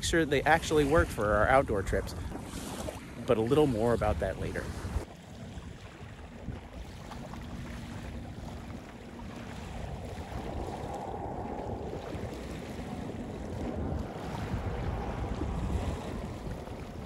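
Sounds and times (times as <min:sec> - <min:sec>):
wind rumbling on microphone: 0:00.0 - 0:17.0.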